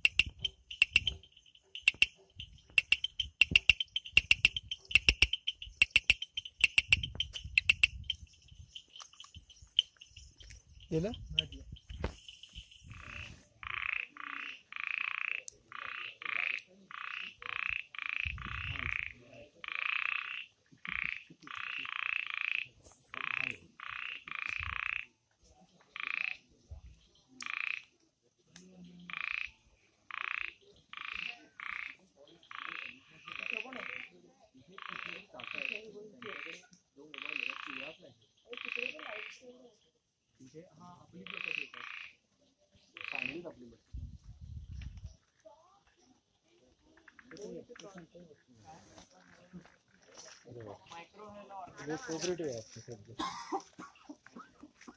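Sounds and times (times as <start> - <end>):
frog calling: 0.0 - 25.1, 26.0 - 26.5, 27.4 - 27.9, 28.8 - 39.6, 41.1 - 43.6.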